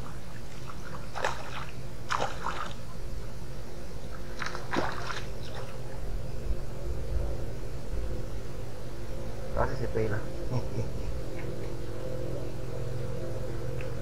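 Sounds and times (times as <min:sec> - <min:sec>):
fish splashing out of water: 0:00.8 - 0:02.8, 0:04.4 - 0:05.7.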